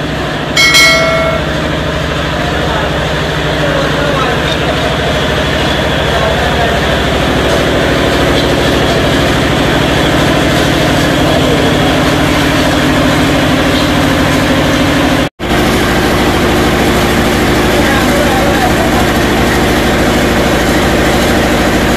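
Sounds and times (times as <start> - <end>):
diesel engine running: 0.0 - 21.9.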